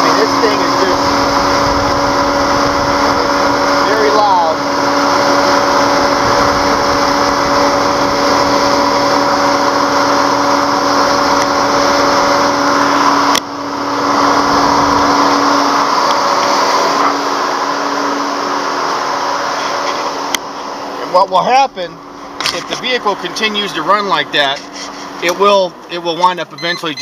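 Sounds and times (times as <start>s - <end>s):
radiator fan whirring: 0.0s - 27.0s.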